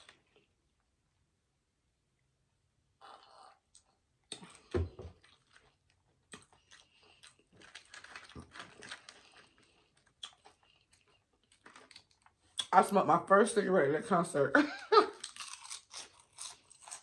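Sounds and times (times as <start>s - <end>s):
chewing crunchy snack: 3.0s - 12.7s, 15.1s - 17.0s.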